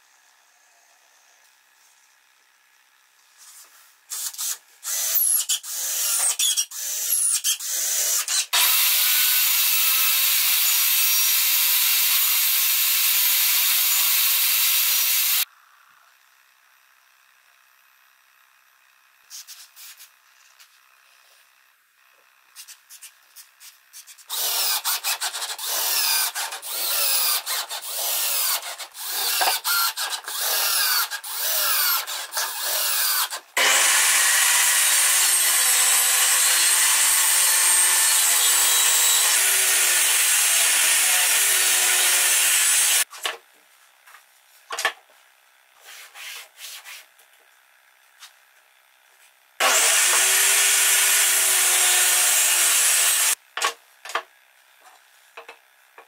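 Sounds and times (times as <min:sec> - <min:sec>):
power tool running: 0:04.1 - 0:15.5, 0:24.3 - 0:43.1, 0:49.6 - 0:53.4.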